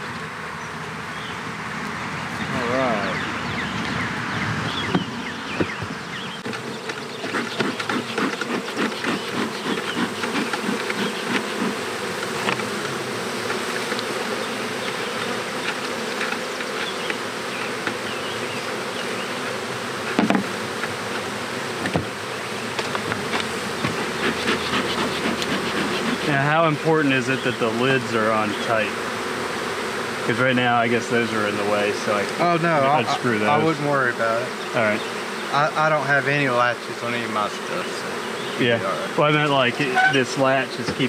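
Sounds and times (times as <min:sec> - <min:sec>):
honeybees buzzing: 0:00.0 - 0:41.0
sharp knocks: 0:20.2 - 0:20.5.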